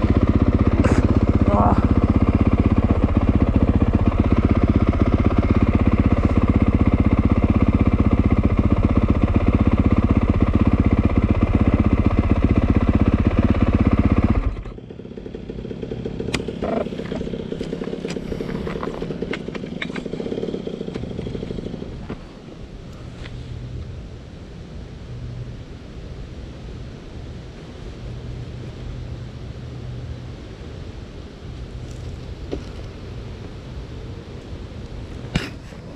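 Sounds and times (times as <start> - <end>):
distant dirt bike engine: 0.0 - 23.4, 31.7 - 35.9
dirt bike engine idling: 0.0 - 25.7, 27.1 - 35.9.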